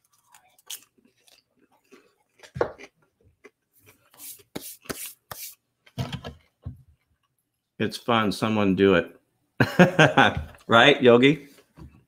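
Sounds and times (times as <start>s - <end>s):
popcorn chewing crunches: 0.0s - 4.1s.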